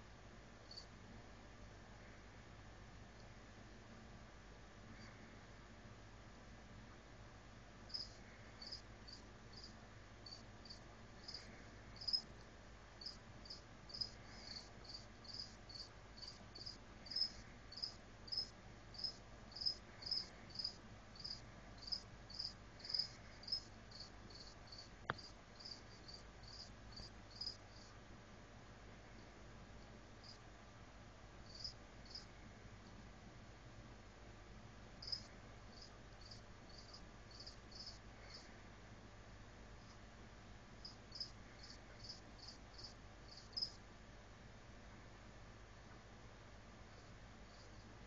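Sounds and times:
cricket chirping: 0.7 - 0.9, 7.9 - 12.4, 13.0 - 27.9, 30.2 - 30.4, 31.4 - 32.3, 35.0 - 38.5, 40.8 - 43.8, 47.0 - 47.9.

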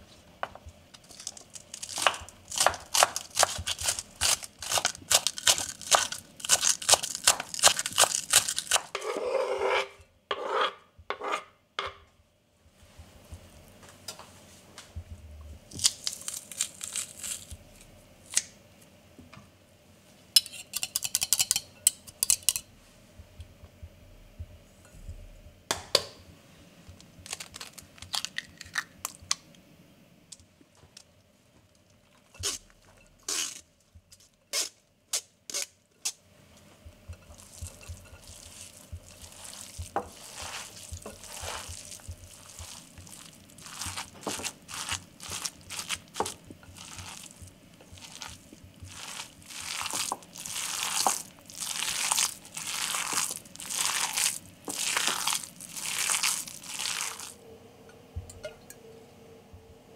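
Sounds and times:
hands kneading minced meat: 0.9 - 9.0, 36.4 - 57.4.

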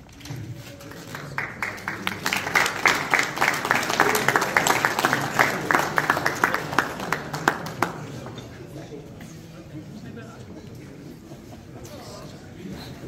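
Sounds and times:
audience applauding: 0.8 - 8.4
close sharp hand claps: 0.9 - 8.4.

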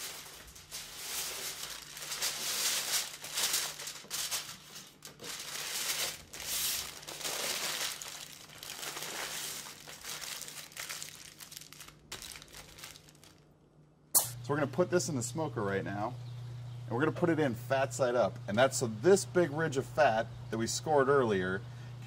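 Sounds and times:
aluminium foil crinkling: 0.0 - 13.5.

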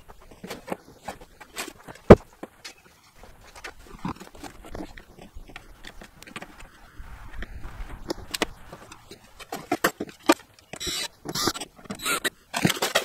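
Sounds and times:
rasping bursts: 3.9 - 13.0
metal parts clicking and rattling: 8.1 - 13.0.

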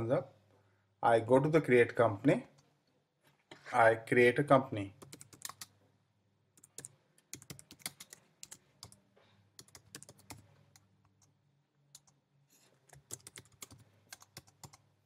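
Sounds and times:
typing on computer keyboard: 5.0 - 5.7, 6.6 - 9.0, 9.6 - 11.3, 12.9 - 14.9.

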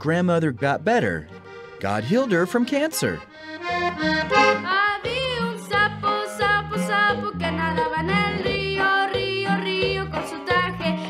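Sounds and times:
button accordion playing lively tune: 0.4 - 11.0
girl singing: 4.1 - 11.0.

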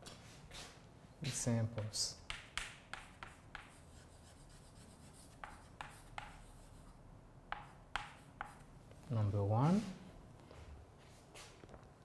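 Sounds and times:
chalk tapping and scraping on blackboard: 1.7 - 8.8.

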